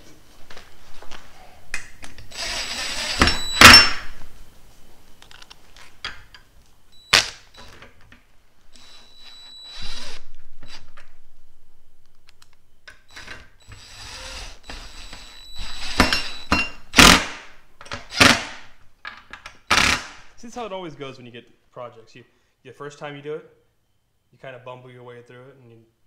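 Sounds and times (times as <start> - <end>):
cordless drill running: 2.3 - 3.8, 8.7 - 10.9, 13.1 - 17.2.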